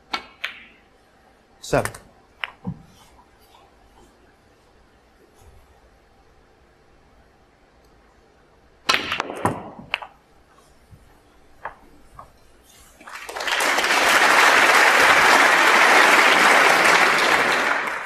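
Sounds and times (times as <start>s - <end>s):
snooker balls clicking: 0.1s - 0.8s, 1.8s - 2.8s, 8.8s - 12.4s
audience applause: 13.0s - 18.0s.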